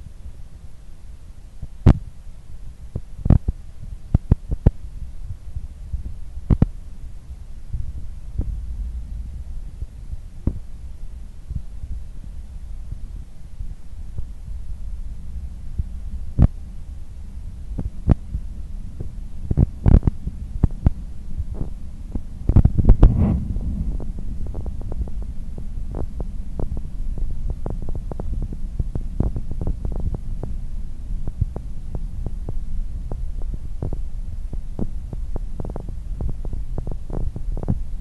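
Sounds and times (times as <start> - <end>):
train rumbling at speed: 23.0 - 30.6.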